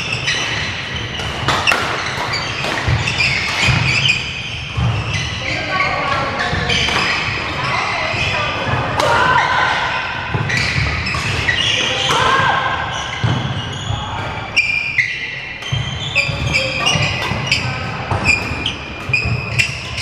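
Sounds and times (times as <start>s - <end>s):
shoes squeaking on wooden floor: 0.0s - 8.6s, 10.4s - 20.0s
rackets hitting shuttlecock: 0.1s - 5.3s, 6.5s - 7.4s, 8.6s - 9.4s, 15.5s - 20.0s.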